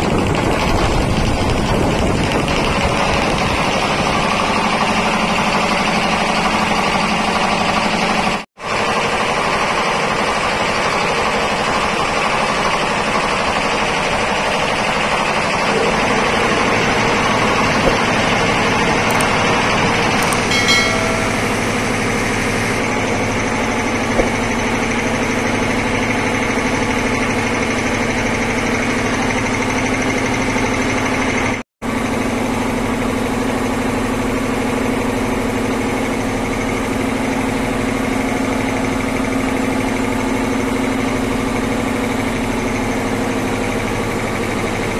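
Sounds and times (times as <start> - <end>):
air compressor clattering and humming: 0.0 - 44.9.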